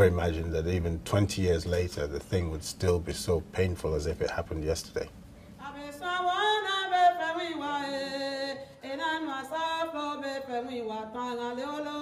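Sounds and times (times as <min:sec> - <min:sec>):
person singing unaccompanied: 0:05.6 - 0:12.0.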